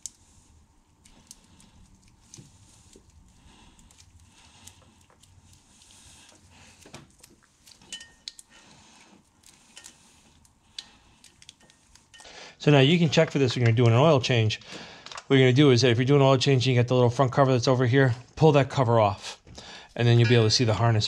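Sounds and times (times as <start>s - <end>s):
wiring harness rustling: 0.0s - 12.3s.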